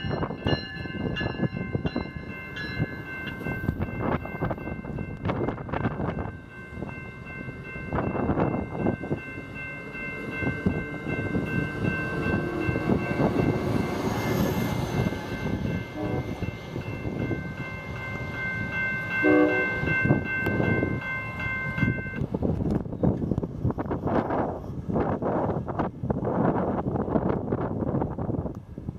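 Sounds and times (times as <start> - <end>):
train wheel and rail rumble: 0.0 - 28.9
train horn blast: 15.8 - 16.5, 19.2 - 20.0.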